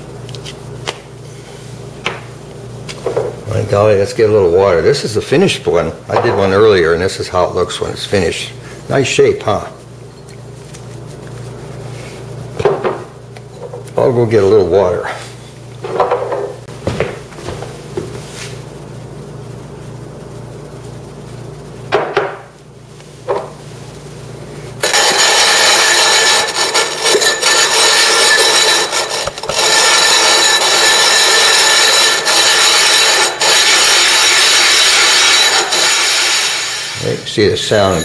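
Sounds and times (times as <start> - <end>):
glass grinding on plate glass: 24.8 - 38.0.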